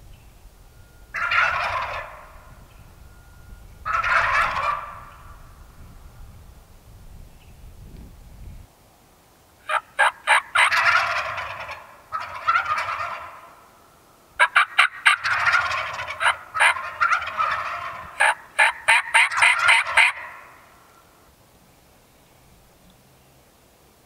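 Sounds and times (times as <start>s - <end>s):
turkeys gobbling: 1.1s - 2.7s, 3.8s - 5.4s, 9.6s - 13.8s, 14.4s - 21.0s
short sharp turkey calls: 1.2s - 2.4s, 3.9s - 5.3s, 9.6s - 13.7s, 14.4s - 21.1s.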